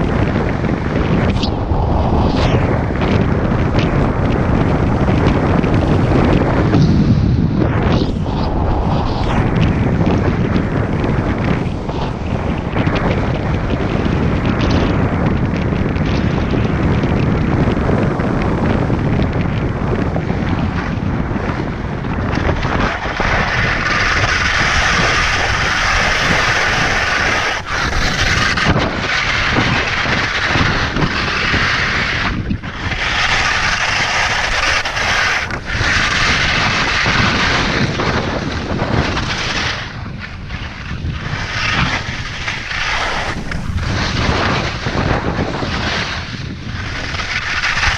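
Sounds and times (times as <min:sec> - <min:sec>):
wind buffeting microphone: 0:00.0 - 0:47.9
skis scraping on snow: 0:22.3 - 0:47.9.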